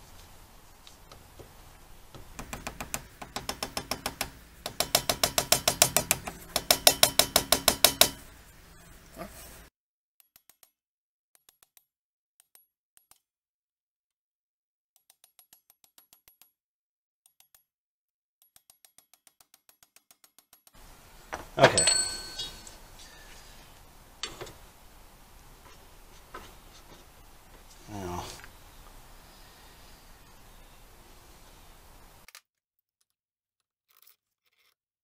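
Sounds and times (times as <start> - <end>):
hammer tapping metal: 2.1 - 8.3, 20.8 - 27.8.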